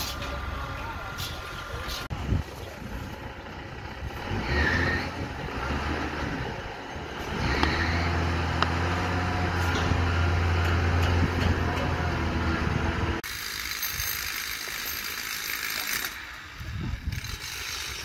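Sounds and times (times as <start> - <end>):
diesel engine humming: 0.0 - 13.3
construction site background: 0.0 - 18.0.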